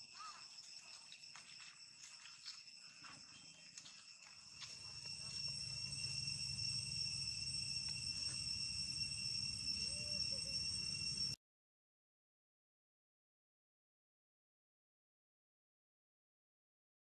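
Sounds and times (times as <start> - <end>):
insects chirring: 0.0 - 11.4.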